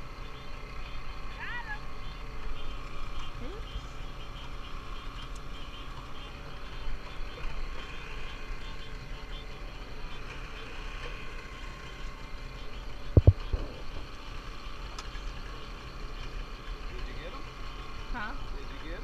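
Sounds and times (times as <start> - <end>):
boat engine droning: 0.0 - 19.0
higher steady hum: 8.0 - 16.0.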